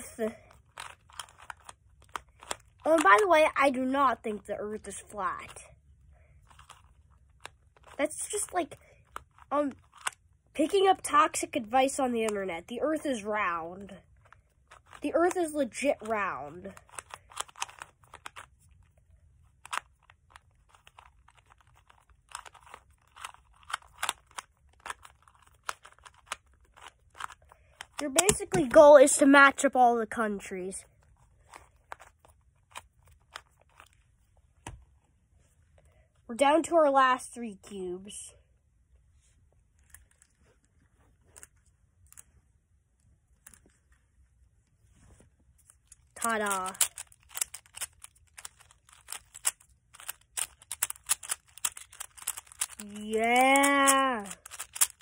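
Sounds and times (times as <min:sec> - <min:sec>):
plastic puzzle clicking: 0:00.5 - 0:03.3, 0:16.8 - 0:18.8, 0:19.6 - 0:28.9, 0:45.8 - 0:55.0.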